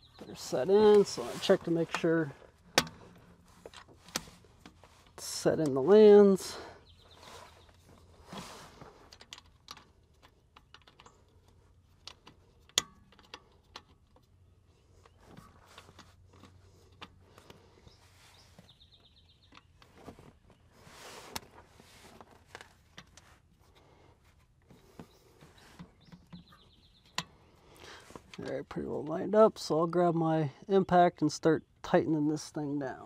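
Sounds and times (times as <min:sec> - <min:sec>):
clicks and knocks of metal part: 0:09.1 - 0:14.3.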